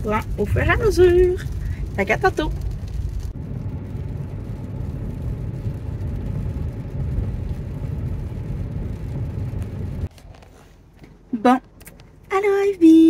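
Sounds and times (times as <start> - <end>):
tyres and engine rumbling on wet road: 0.0 - 10.1.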